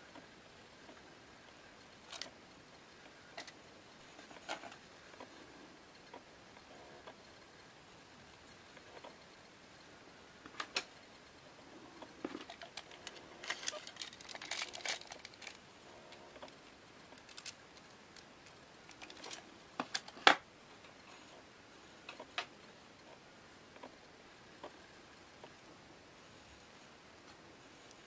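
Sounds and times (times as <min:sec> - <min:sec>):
scraping and rustling: 0:11.8 - 0:20.3.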